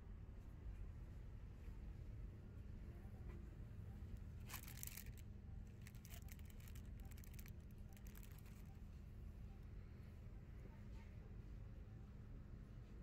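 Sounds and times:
faint low hum: 0.0s - 13.0s
brief rustle: 4.4s - 5.2s.

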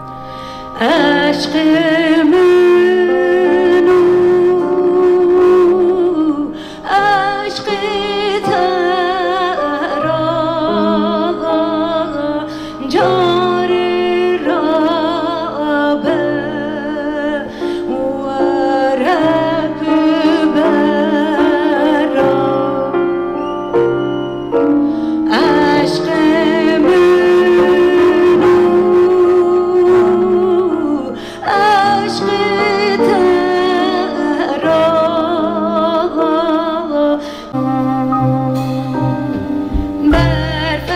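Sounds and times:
woman singing folk melody: 0.8s - 23.1s, 25.0s - 38.1s, 39.8s - 40.9s
held low notes: 37.6s - 40.9s.

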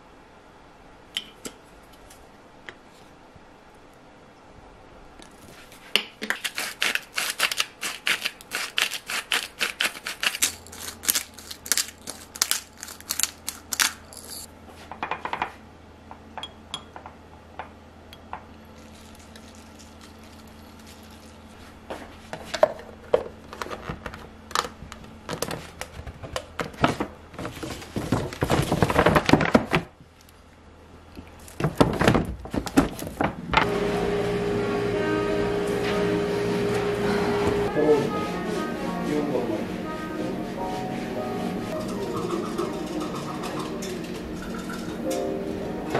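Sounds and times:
food containers being handled: 22.3s - 29.9s
utensil clinking against glass dish: 41.8s - 45.2s.

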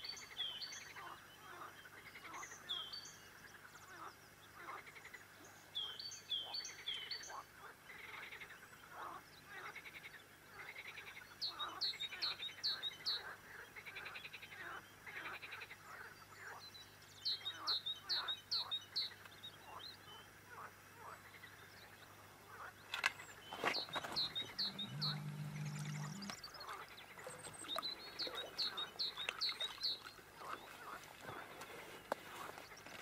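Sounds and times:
frogs croaking: 0.1s - 33.0s
small bird chirping: 22.8s - 30.7s.

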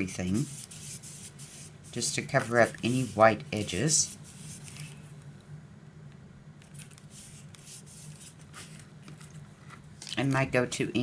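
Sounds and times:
steady low hum: 0.0s - 11.0s
hands smoothing paper: 0.2s - 5.0s, 6.7s - 8.9s.

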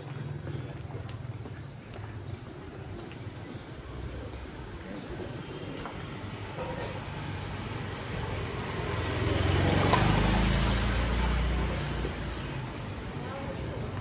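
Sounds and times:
motorbike engine passing: 5.0s - 14.0s.

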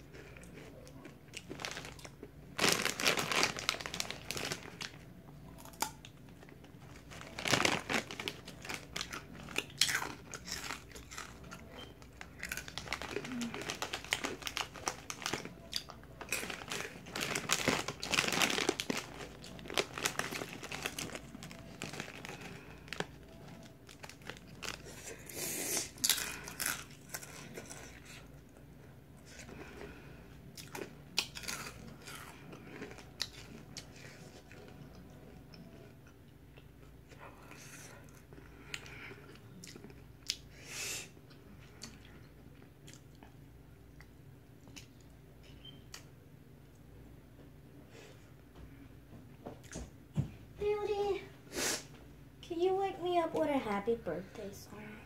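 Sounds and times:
crunchy chips being chewed: 0.0s - 40.5s
snack bag crinkling: 1.4s - 28.3s, 30.6s - 34.8s.

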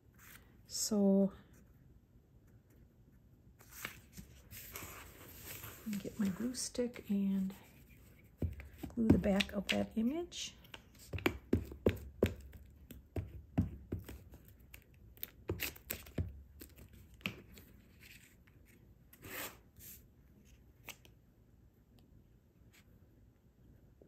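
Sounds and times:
paper taps and scrapes: 3.6s - 6.6s, 7.7s - 9.9s
paper rustle: 3.6s - 6.7s.

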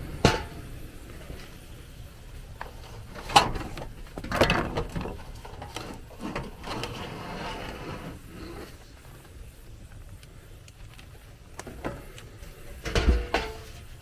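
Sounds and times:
plastic and metal parts clattering: 2.7s - 7.2s.

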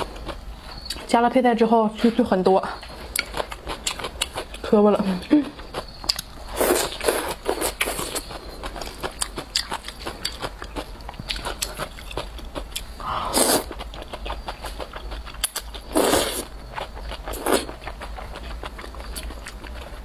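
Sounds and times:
wet chewing and mouth clicks: 2.8s - 4.7s, 5.4s - 20.0s.

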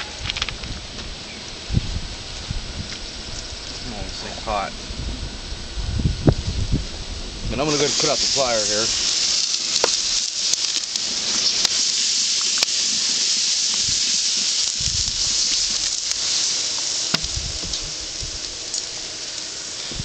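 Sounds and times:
burner hissing and crackling: 0.0s - 20.0s
low thumps: 17.1s - 18.4s.

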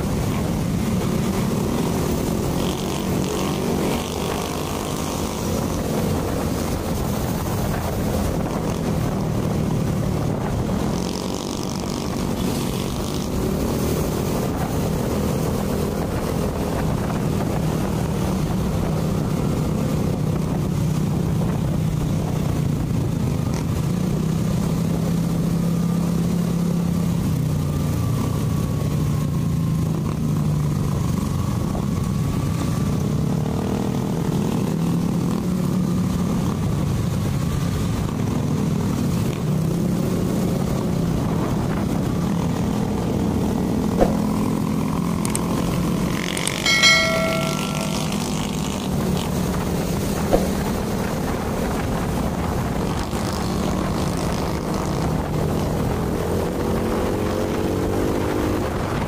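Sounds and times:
wind and road noise: 0.0s - 59.0s
short high-pitched tone: 46.6s - 48.6s.

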